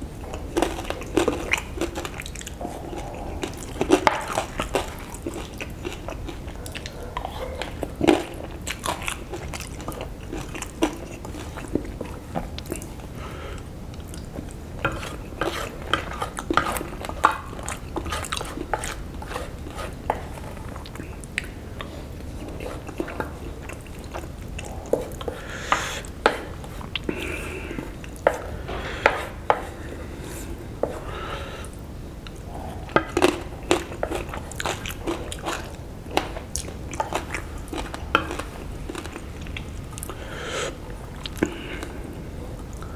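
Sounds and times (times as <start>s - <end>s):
chewing and mouth smacks: 0.2s - 13.1s, 13.9s - 27.2s, 32.2s - 40.2s, 41.0s - 42.0s
wooden spoon scraping a plate: 14.9s - 16.9s.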